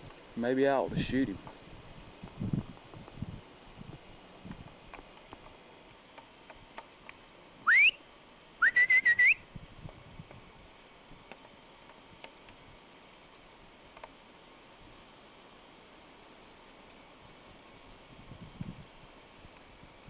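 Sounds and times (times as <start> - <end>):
loud whistled notes: 7.6 - 8.0, 8.6 - 9.4.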